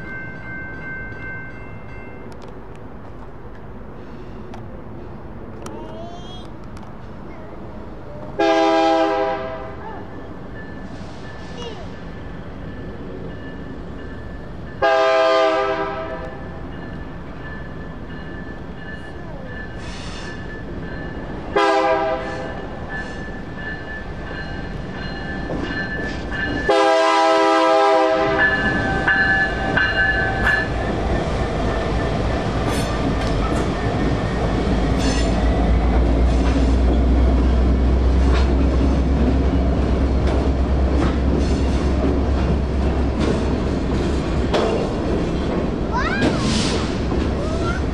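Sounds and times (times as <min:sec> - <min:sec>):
crossing signal bells ringing: 0:00.0 - 0:02.8, 0:09.6 - 0:36.2
locomotive horn blasts: 0:08.4 - 0:09.8, 0:14.8 - 0:16.4, 0:21.6 - 0:22.5, 0:26.7 - 0:28.5.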